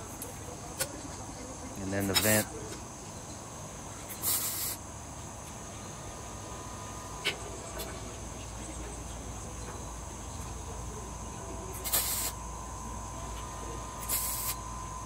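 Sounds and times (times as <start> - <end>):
high-pitched insect chorus: 0.0 - 15.0
short hiss: 4.1 - 4.8, 11.8 - 12.4, 14.0 - 14.6.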